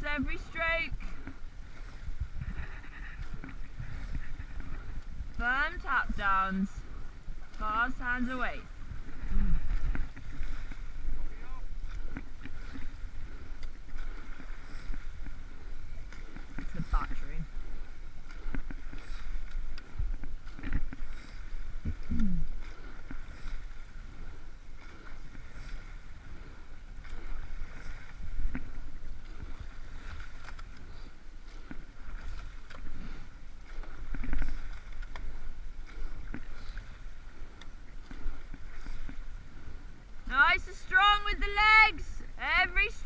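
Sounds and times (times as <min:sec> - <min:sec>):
wind noise on microphone: 0:00.0 - 0:07.4, 0:18.4 - 0:22.6
oar blades stroking water: 0:00.0 - 0:43.0
water rushing: 0:00.0 - 0:43.0.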